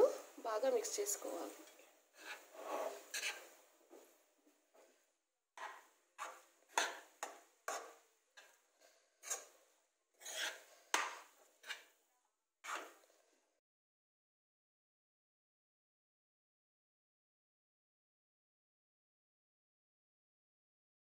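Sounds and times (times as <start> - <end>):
metal spoon scraping a pan: 1.4 - 3.6, 5.6 - 9.6, 10.2 - 12.0, 12.6 - 13.1.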